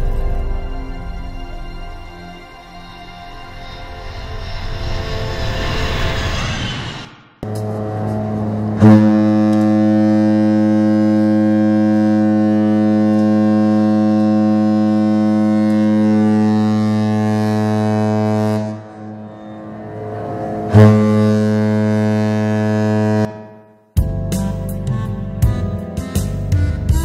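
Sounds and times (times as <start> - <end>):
ship's horn deep blast: 7.4 - 23.7.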